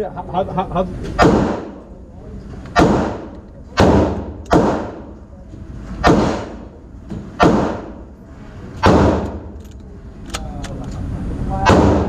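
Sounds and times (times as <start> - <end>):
handgun shots with ringing echo: 1.2 - 1.8, 2.8 - 5.2, 6.0 - 6.8, 7.4 - 8.0, 8.8 - 9.6.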